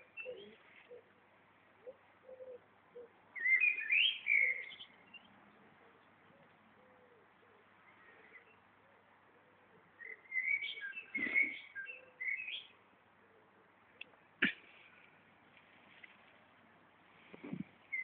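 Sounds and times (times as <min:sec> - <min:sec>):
songbird singing: 0:00.0 - 0:18.0
pigeon cooing: 0:00.1 - 0:01.2, 0:01.8 - 0:03.2, 0:05.7 - 0:10.6.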